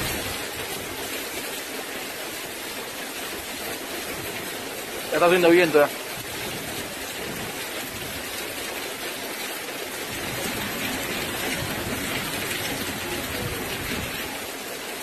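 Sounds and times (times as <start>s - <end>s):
gusting wind: 0.0s - 1.4s, 6.0s - 8.6s, 10.1s - 14.5s
heavy rain pouring: 0.0s - 15.0s.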